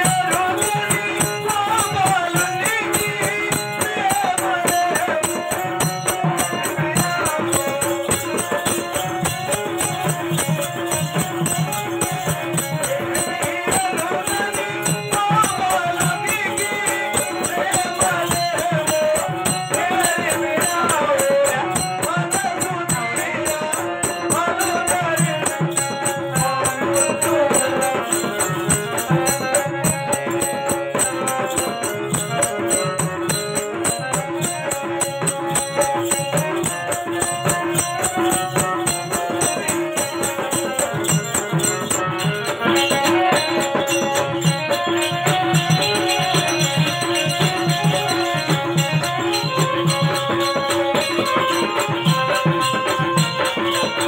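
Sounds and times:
hand drum beat: 0.0 - 54.0
wavering melody: 22.0 - 54.0.

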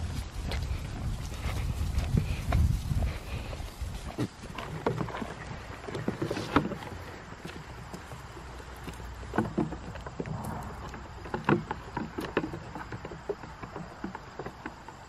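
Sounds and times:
hooves knocking on wood: 4.1 - 15.0
low rumble: 10.2 - 12.0.

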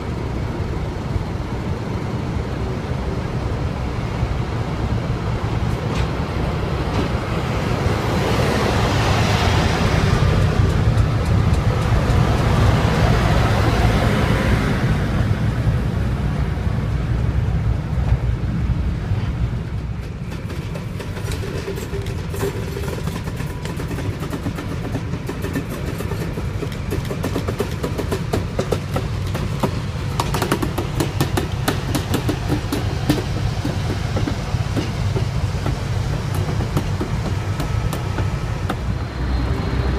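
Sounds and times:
diesel locomotive passing: 0.0 - 39.9
wheels clicking over rail joints: 5.6 - 14.2, 19.1 - 39.9.

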